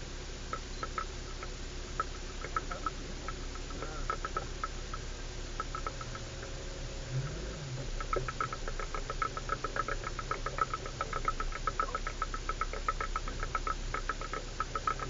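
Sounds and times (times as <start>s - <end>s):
low engine hum: 0.0s - 15.0s
vehicle knocking and rattling: 5.6s - 15.0s.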